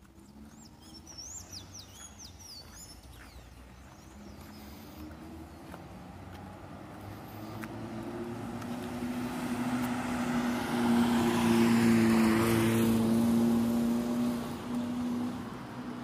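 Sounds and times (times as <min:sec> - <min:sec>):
vehicle passing by: 0:00.0 - 0:16.0.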